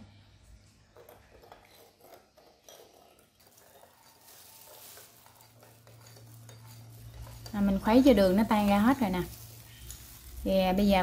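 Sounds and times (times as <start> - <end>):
spoon clinking in ceramic bowl: 1.0 - 7.6.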